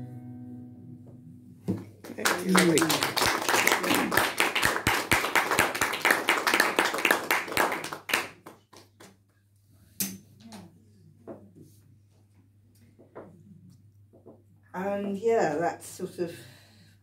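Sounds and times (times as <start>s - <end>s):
audience applause: 2.0s - 9.0s.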